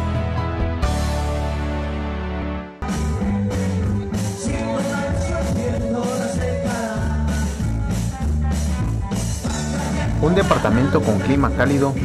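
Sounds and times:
electric bass: 0:00.0 - 0:12.0
electric guitar: 0:00.0 - 0:12.0
drum kit beat: 0:02.8 - 0:12.0.

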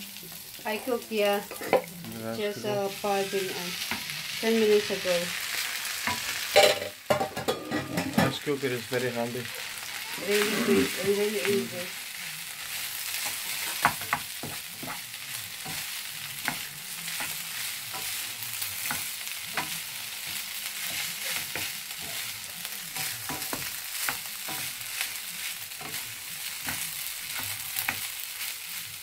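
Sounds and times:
rice sizzling in a frying pan: 0:00.0 - 0:29.0
utensils scraping a pan: 0:07.4 - 0:08.4, 0:12.7 - 0:28.2.

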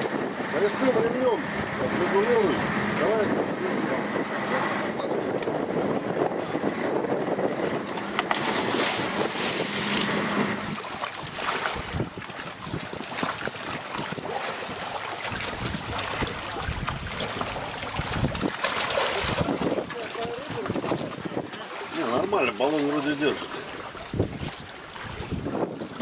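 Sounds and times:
wind gusting on microphone: 0:00.0 - 0:22.4, 0:23.8 - 0:26.0
water lapping against boat: 0:00.0 - 0:26.0.

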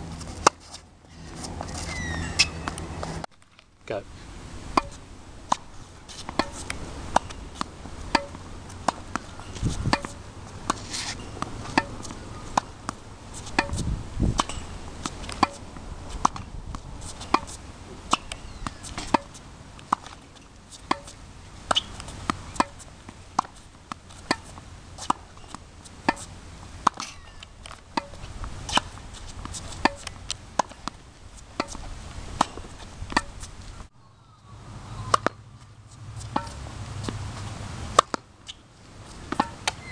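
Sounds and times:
tennis ball hit by racket: 0:00.4 - 0:00.8, 0:04.7 - 0:20.2, 0:20.8 - 0:33.5, 0:35.0 - 0:35.4, 0:36.2 - 0:37.2, 0:37.9 - 0:38.3, 0:39.2 - 0:39.9.

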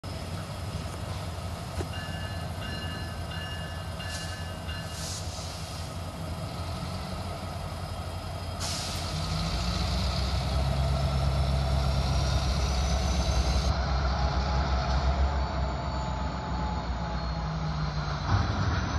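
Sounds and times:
diesel locomotive idling: 0:00.0 - 0:18.8
hiss: 0:04.1 - 0:06.0, 0:08.6 - 0:09.4.

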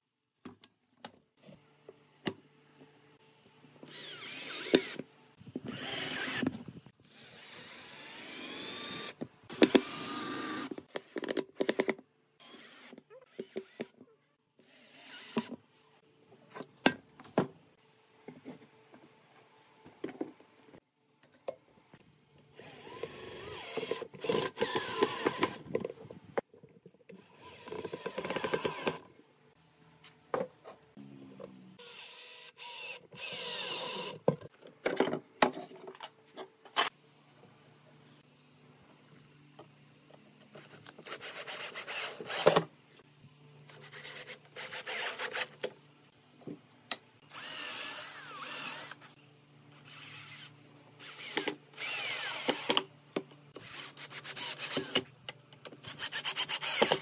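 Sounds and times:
cordless drill driving screws: 0:03.9 - 0:10.8, 0:14.6 - 0:15.6, 0:22.6 - 0:25.7, 0:27.3 - 0:29.0, 0:31.8 - 0:34.2, 0:47.3 - 0:49.1, 0:49.8 - 0:52.8, 0:55.8 - 0:57.0.

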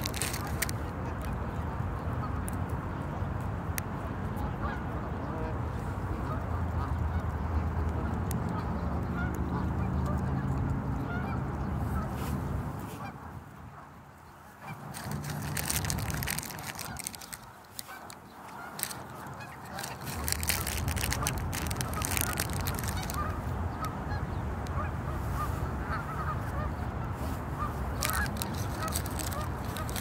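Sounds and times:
sharp clicks and rustles: 0:00.0 - 0:00.8, 0:14.8 - 0:23.9, 0:27.9 - 0:30.0
geese honking: 0:08.5 - 0:12.1, 0:14.6 - 0:30.0.

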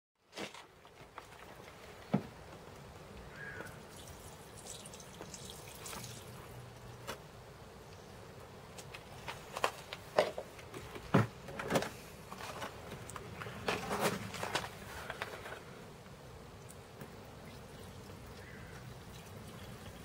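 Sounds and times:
liquid trickling and dripping: 0:03.6 - 0:07.1, 0:16.6 - 0:20.0.

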